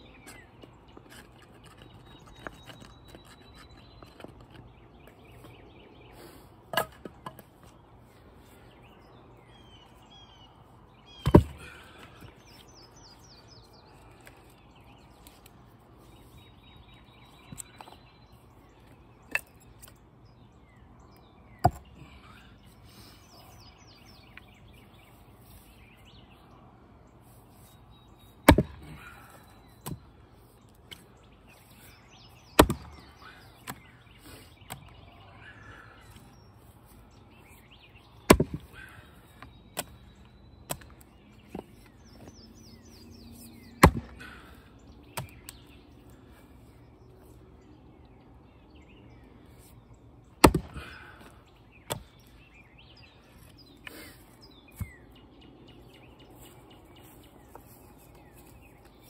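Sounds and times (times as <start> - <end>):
birds chirping: 0.0 - 59.0
splitting tool striking wood: 28.4 - 28.8, 32.6 - 33.0, 38.3 - 38.6, 43.8 - 44.2, 50.4 - 50.9.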